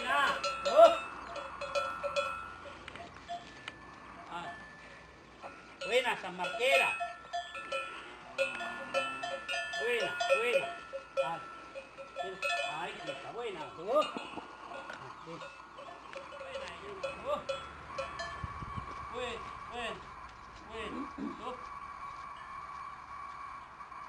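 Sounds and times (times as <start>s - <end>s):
cowbells clanking: 0.0s - 24.0s
animal calls: 13.9s - 24.0s.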